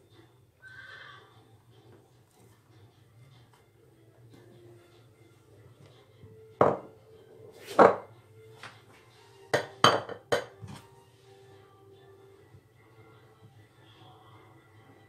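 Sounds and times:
spatula knocking against bowl: 9.6s - 10.6s.

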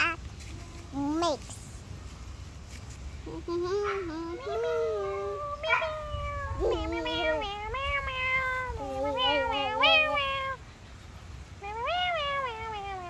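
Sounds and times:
cat meowing: 3.8s - 10.6s, 11.6s - 13.0s.

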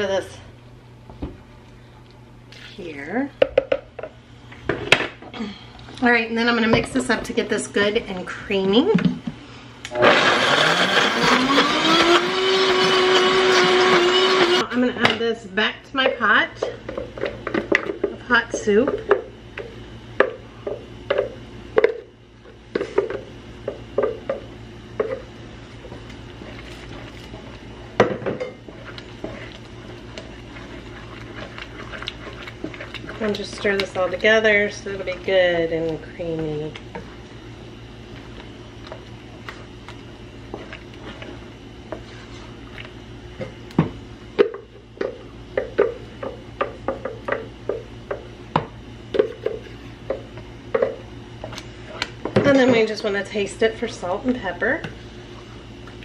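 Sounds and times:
spoon stirring in a pan: 25.0s - 36.0s
spatula scraping blender jar: 28.7s - 35.2s.

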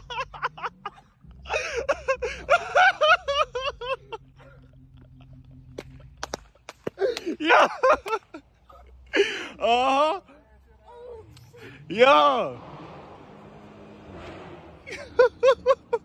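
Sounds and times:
low steady hum: 0.0s - 11.8s
young men yelling: 9.6s - 12.6s.

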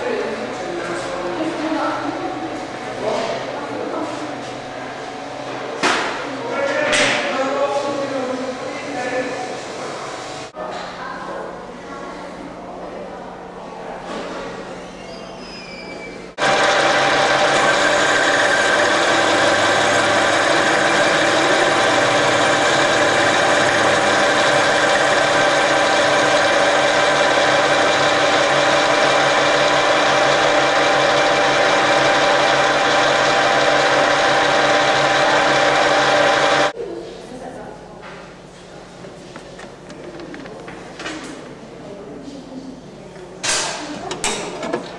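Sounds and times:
whining machine tones: 15.9s - 36.7s
metal lathe cutting: 16.4s - 36.7s.

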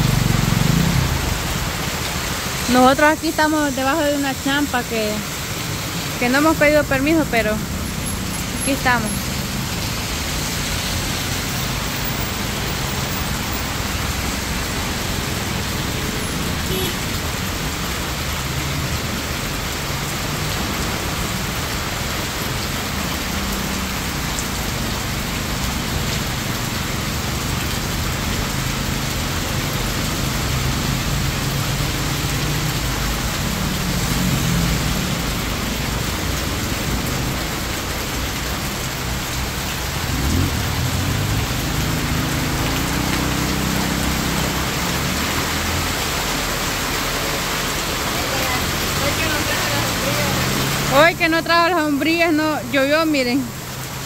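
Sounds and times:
heavy rain on wet pavement: 0.0s - 54.0s
vehicles moving through water: 0.0s - 54.0s.

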